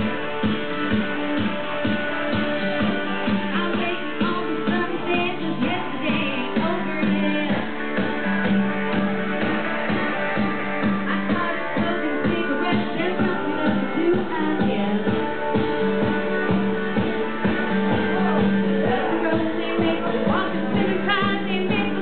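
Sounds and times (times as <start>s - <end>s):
guitar-led backing music: 0.0s - 22.0s
woman singing: 3.3s - 7.8s, 11.0s - 15.6s, 18.0s - 22.0s.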